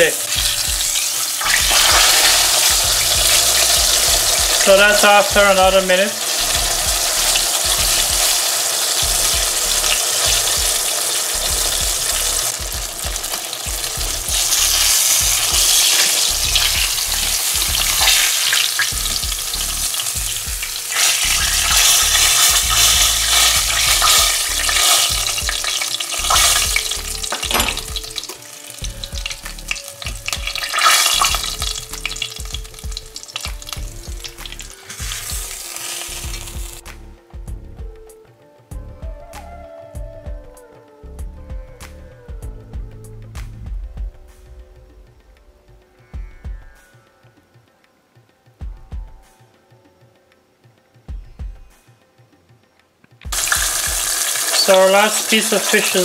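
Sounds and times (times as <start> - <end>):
fish frying in oil: 0.0 - 36.8, 53.3 - 56.0.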